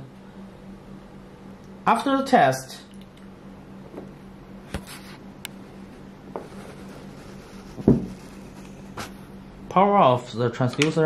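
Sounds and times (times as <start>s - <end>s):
steady low hum: 0.0s - 11.0s
metal object thump: 7.8s - 8.2s.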